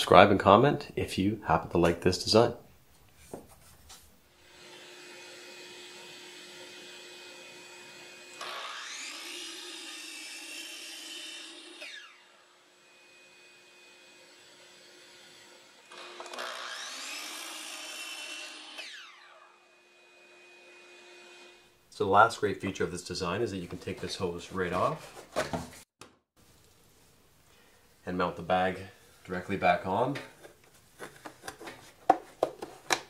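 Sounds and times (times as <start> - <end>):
miter saw motor whining: 4.4 - 21.6
saw cutting wooden block: 4.4 - 21.7.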